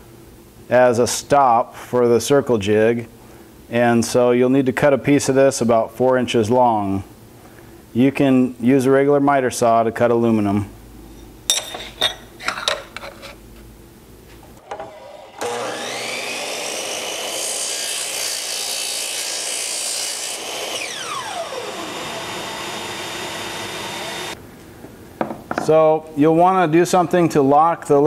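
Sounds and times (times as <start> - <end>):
saw blade cutting aluminum: 14.6 - 24.4
miter saw motor whine: 14.7 - 18.6, 20.2 - 24.4.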